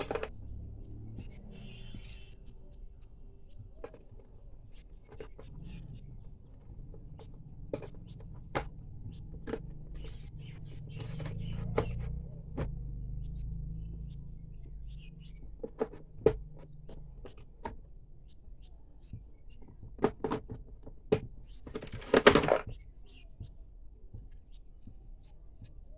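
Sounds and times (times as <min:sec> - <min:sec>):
tools knocking in plastic case: 0:06.6 - 0:12.8, 0:15.4 - 0:17.8, 0:19.1 - 0:22.8.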